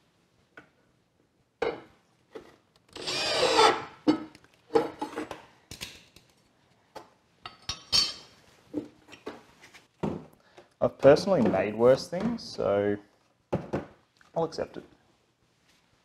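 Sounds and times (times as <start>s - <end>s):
cordless drill driving screw: 2.9s - 3.9s.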